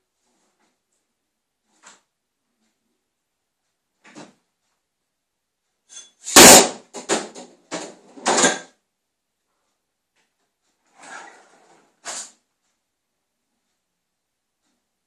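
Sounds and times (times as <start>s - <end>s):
knocks and rattles: 6.0s - 8.8s
kitchen cupboards banging: 6.3s - 8.8s.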